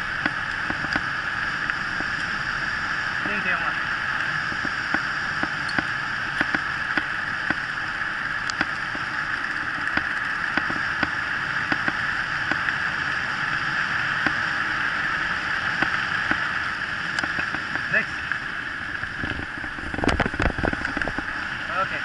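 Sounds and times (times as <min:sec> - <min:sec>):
bike tyres on paved road: 0:00.0 - 0:22.0
wind rushing: 0:18.8 - 0:21.6.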